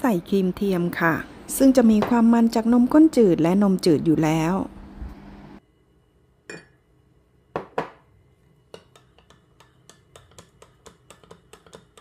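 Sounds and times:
metal spoon clinking against glass: 6.5 - 6.8.

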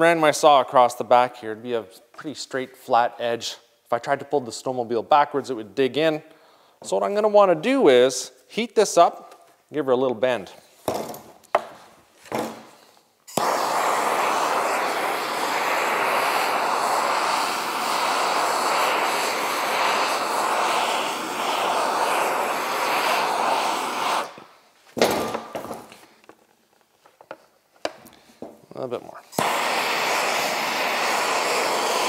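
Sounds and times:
gas torch hissing: 13.3 - 24.6, 29.2 - 32.0.

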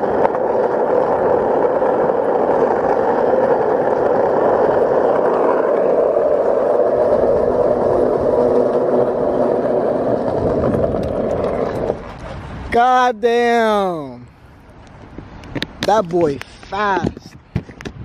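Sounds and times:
skateboard wheels rolling on asphalt: 0.0 - 18.0.

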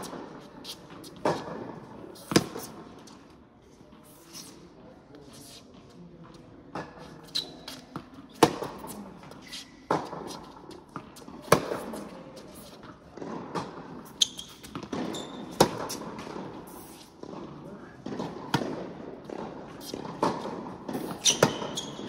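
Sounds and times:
racket striking tennis ball: 0.0 - 3.1, 6.7 - 22.0
shoe squeaks on hard court: 4.1 - 4.6, 7.0 - 10.6, 14.0 - 16.1, 19.8 - 22.0.

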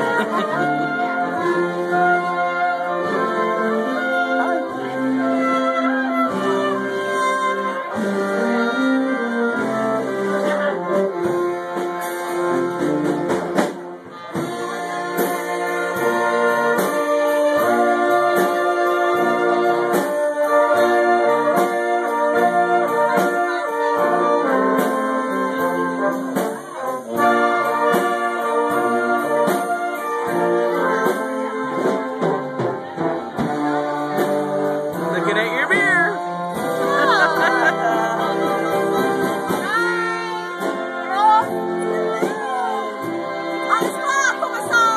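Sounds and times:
accordions: 0.0 - 44.9
clarinet: 0.0 - 44.9
trombone: 0.0 - 44.9
trumpets: 0.0 - 44.9
tuba: 0.0 - 44.9.

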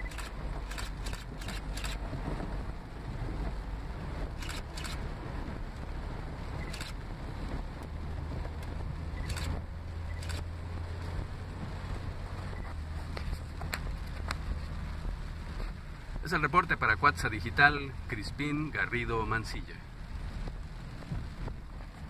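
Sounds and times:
car engine rumbling: 0.0 - 22.0.

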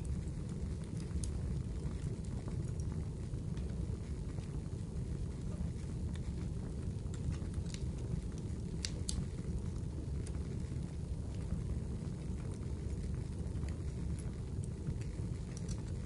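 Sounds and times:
sharp crackles and pops: 0.0 - 16.0.

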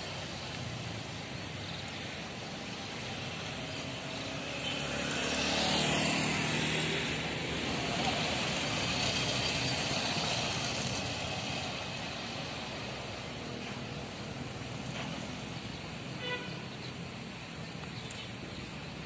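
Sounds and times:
bus engines running: 0.0 - 19.0
traffic: 0.0 - 19.0
motor scooter passing: 2.5 - 12.9.

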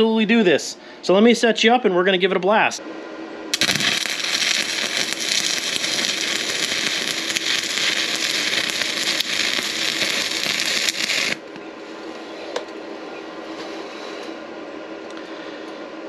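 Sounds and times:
welding arc crackling: 3.5 - 11.4.

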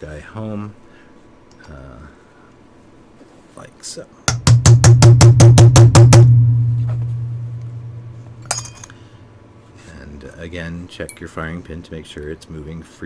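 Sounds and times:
hammer striking metal punch: 4.3 - 8.9
low ringing hum: 5.4 - 12.2.

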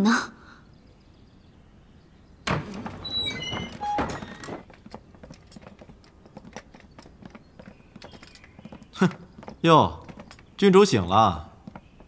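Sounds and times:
door thumping open: 2.4 - 10.4
footsteps on wooden floor: 2.5 - 10.6, 11.4 - 12.0.

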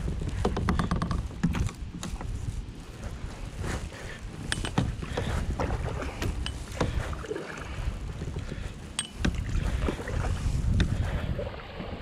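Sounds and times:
paddle clicks and knocks: 0.0 - 2.4, 4.4 - 7.3, 8.2 - 11.0
wind rumble on microphone: 0.0 - 12.0
paddle splashing water: 2.0 - 12.0.

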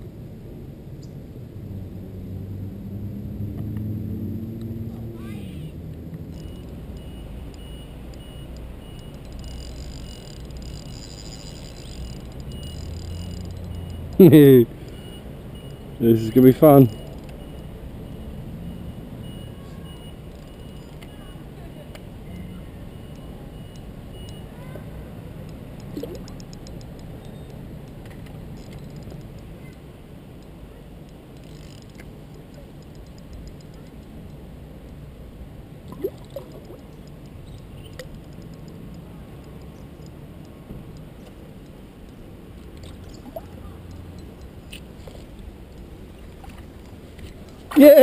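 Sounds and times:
wind rumble on microphone: 0.0 - 6.9
faint clicks: 5.9 - 14.2, 25.4 - 29.8, 30.4 - 35.0, 35.9 - 47.6
spinning reel clicking: 9.0 - 14.0.

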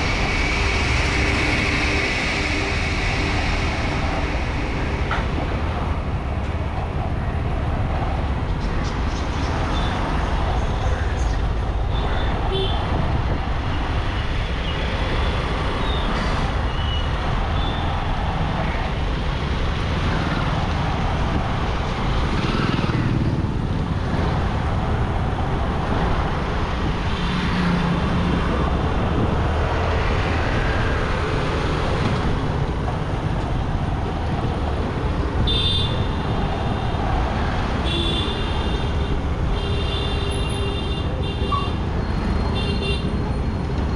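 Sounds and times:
motorcycle engine and wind noise: 17.9 - 35.3
vehicle horns honking: 35.4 - 36.2, 37.8 - 41.8, 42.5 - 43.2.

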